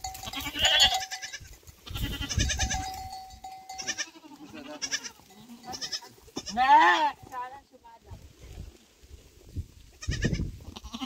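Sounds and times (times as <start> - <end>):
goats bleating: 0.0 - 7.4, 10.0 - 11.0.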